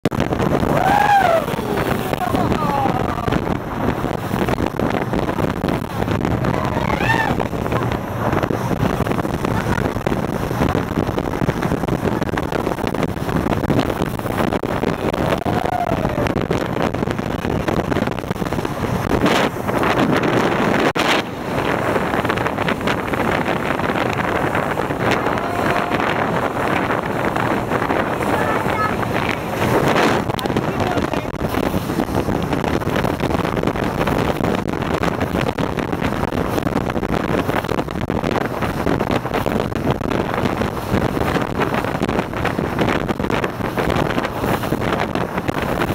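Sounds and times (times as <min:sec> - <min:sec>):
boat engine: 0:00.0 - 0:45.9
water rushing past hull: 0:00.0 - 0:45.9
wind buffeting microphone: 0:00.0 - 0:45.9.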